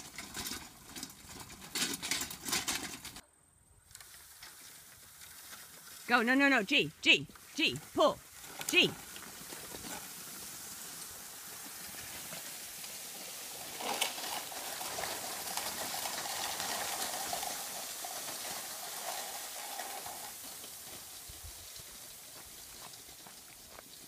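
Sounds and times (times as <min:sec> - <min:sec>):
bamboo dragged over gravel: 0:00.0 - 0:03.2, 0:03.8 - 0:24.0.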